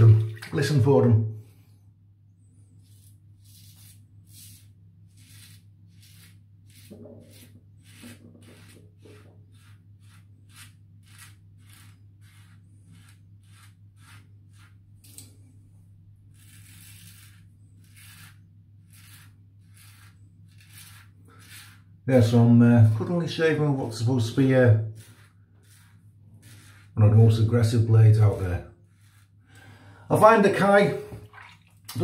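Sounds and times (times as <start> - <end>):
razor scraping stubble: 2.8 - 15.4, 16.2 - 29.4.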